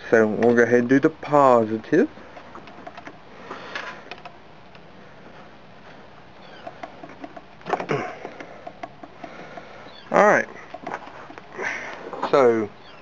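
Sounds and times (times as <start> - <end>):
hands handling battery cables: 6.4 - 9.8, 10.4 - 12.4.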